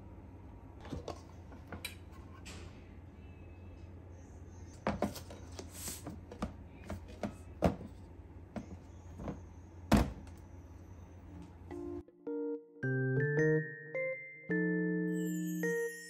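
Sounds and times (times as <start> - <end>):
low steady hum: 0.0 - 12.1.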